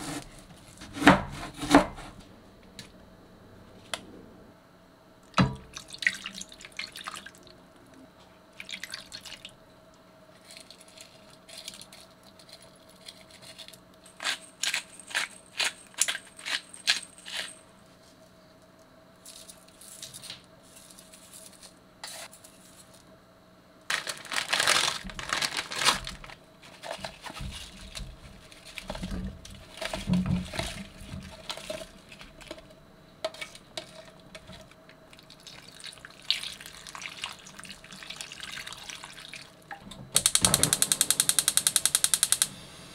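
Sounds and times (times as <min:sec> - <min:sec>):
sharp taps and clicks: 0:40.2 - 0:42.5.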